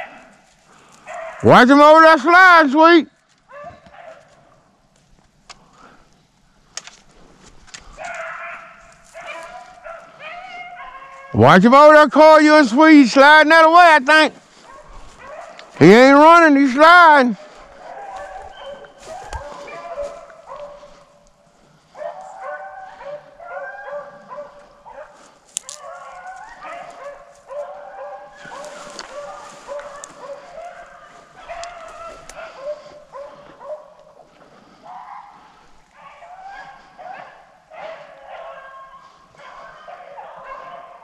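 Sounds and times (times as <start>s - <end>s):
hounds baying and yelping: 0.0s - 2.2s, 3.3s - 4.7s, 7.1s - 41.0s.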